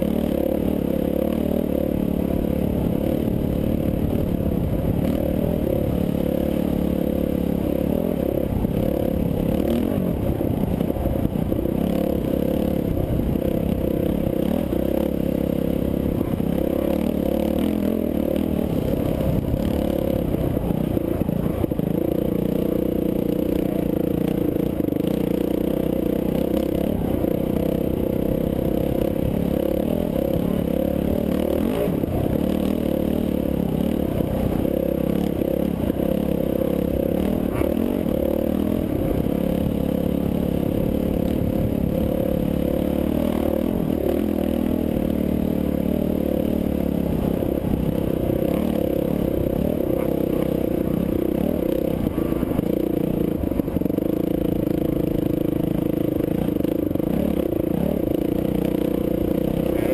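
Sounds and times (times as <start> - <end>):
dirt bike engine droning: 0.0 - 59.9.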